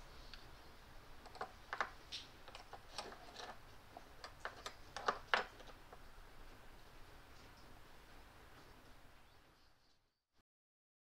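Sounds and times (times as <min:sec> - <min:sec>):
small metal parts clicking: 0:02.5 - 0:03.6.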